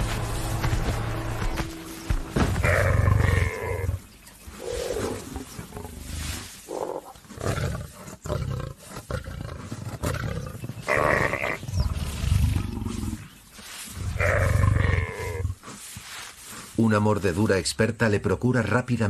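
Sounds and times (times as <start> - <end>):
lioness growling and grunting: 2.6 - 13.4, 14.1 - 15.6.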